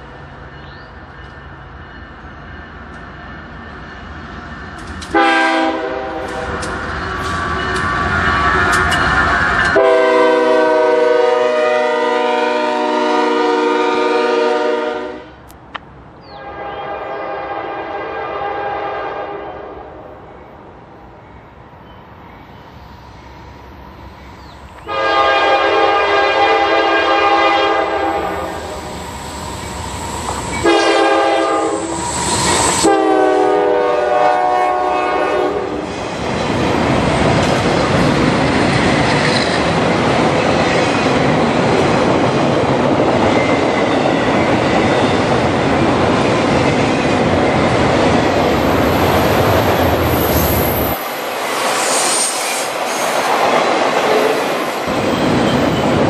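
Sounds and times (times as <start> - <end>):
train cars rumbling and clattering: 0.0 - 14.8, 23.2 - 56.0
locomotive air horn: 5.1 - 6.5, 9.7 - 15.4, 16.4 - 19.7, 24.9 - 28.7, 30.6 - 32.0, 32.6 - 35.8.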